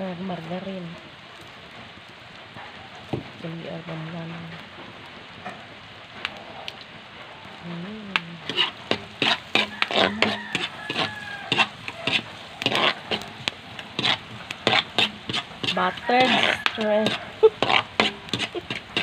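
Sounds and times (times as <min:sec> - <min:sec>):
onion sizzling in butter: 0:00.0 - 0:19.0
utensil scraping a pan: 0:08.4 - 0:19.0.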